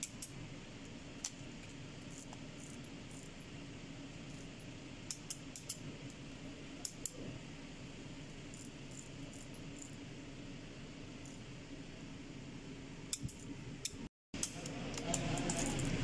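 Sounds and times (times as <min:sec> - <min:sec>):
low room hum: 0:00.0 - 0:16.0
torque wrench metallic clicks: 0:13.1 - 0:15.9.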